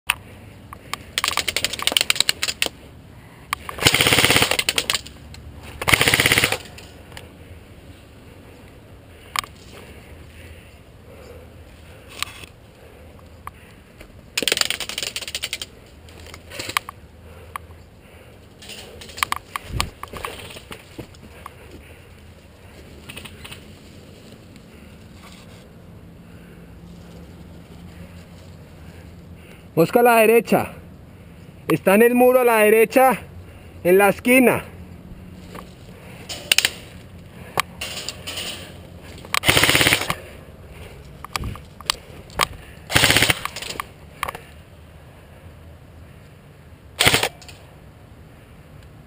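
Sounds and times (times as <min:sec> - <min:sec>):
clatter of sharp clicks: 0:00.8 - 0:02.8
airsoft rifle full-auto bursts: 0:03.7 - 0:05.0, 0:05.8 - 0:06.8, 0:39.4 - 0:40.3, 0:42.9 - 0:43.7, 0:47.0 - 0:47.4.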